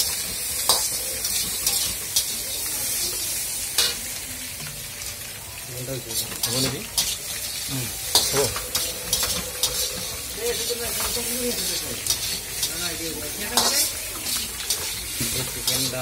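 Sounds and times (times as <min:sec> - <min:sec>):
chicken deep-frying in oil: 0:00.0 - 0:16.0
skimmer scraping and clinking pan: 0:06.2 - 0:16.0.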